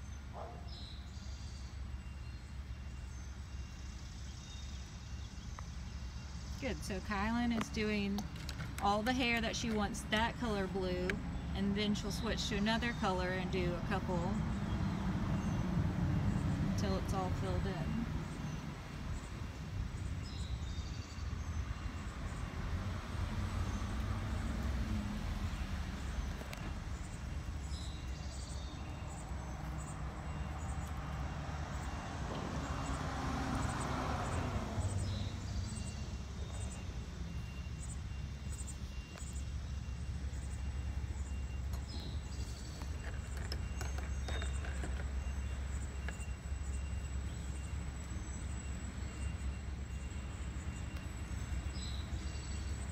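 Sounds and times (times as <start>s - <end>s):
steady low street rumble: 0.0s - 52.9s
vehicle passing by: 13.0s - 20.2s, 21.3s - 39.1s.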